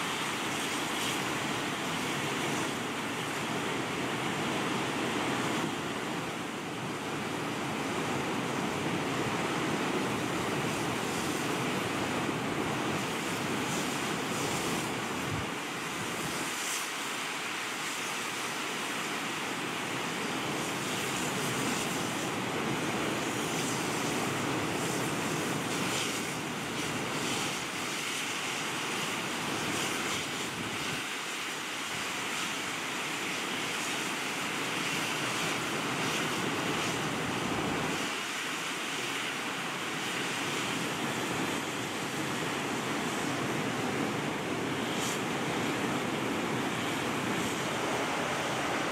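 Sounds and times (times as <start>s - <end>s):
river rushing over rocks: 42.4s - 48.9s.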